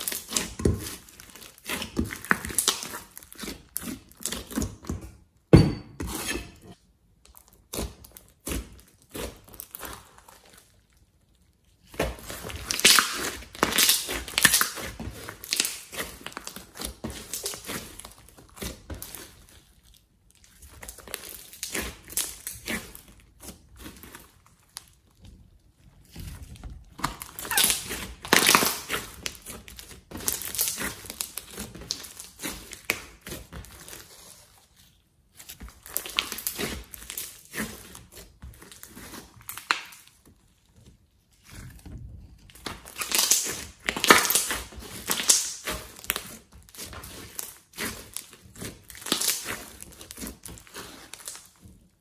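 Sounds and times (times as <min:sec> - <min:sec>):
slime squelching: 0:00.0 - 0:52.0
thump: 0:05.5 - 0:06.0.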